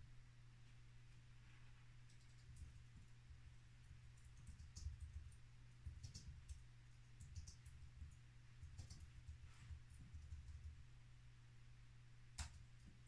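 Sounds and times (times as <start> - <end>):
steady low hum: 0.0 - 13.0
faint clicks: 2.0 - 3.1, 12.4 - 13.0.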